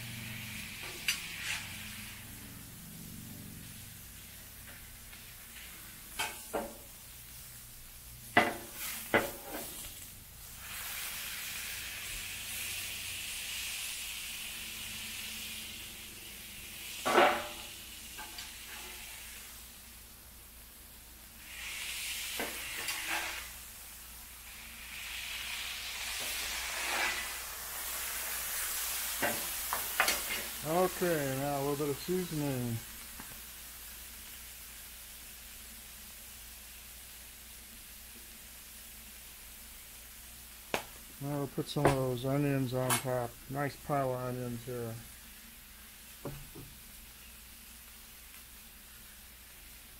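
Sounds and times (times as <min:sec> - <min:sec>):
burgers sizzling on a griddle: 0:00.0 - 0:49.9
metal knocks on griddle: 0:06.2 - 0:06.8, 0:08.3 - 0:09.7, 0:17.0 - 0:17.6, 0:46.2 - 0:46.7.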